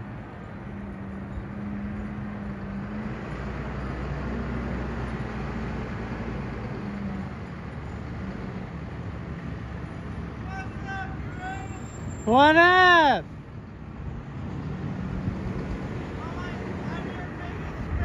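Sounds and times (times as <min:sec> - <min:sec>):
truck diesel engine: 0:00.0 - 0:18.0.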